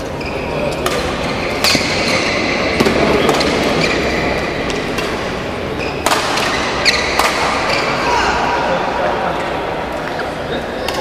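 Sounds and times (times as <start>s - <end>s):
shoes squeaking on floor: 0.0s - 2.6s, 3.2s - 5.0s, 5.7s - 8.3s
rackets striking shuttlecock: 0.6s - 8.0s.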